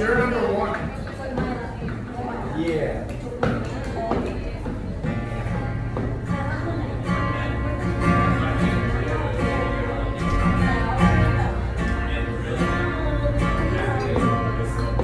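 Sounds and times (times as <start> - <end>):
acoustic guitar strumming: 4.4 - 15.0.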